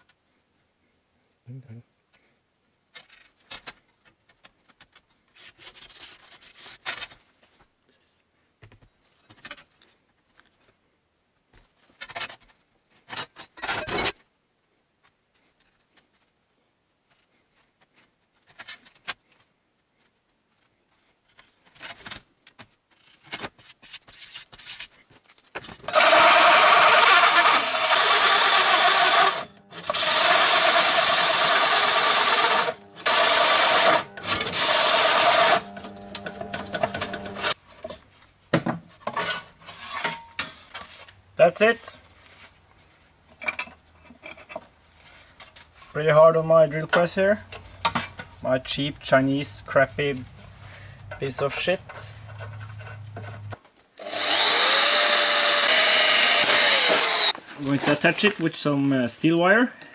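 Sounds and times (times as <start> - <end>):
drill press cutting metal: 25.9 - 37.6, 54.0 - 57.4
shears snipping metal sheet: 27.2 - 37.6.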